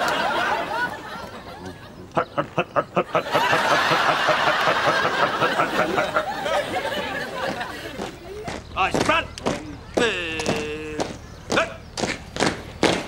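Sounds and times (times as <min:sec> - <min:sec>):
crowd chatter: 0:00.0 - 0:12.8
man chuckling: 0:01.3 - 0:07.1.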